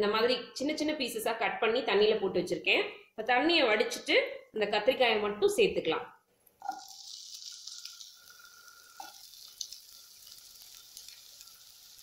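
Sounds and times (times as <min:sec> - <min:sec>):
vegetables sizzling in oil: 0:06.6 - 0:12.0.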